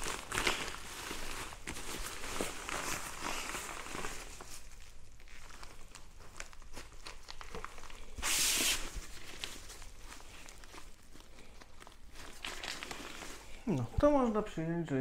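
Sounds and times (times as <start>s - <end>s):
fabric crinkling and rustling: 0.0s - 15.0s
hissing rustle: 8.1s - 11.0s.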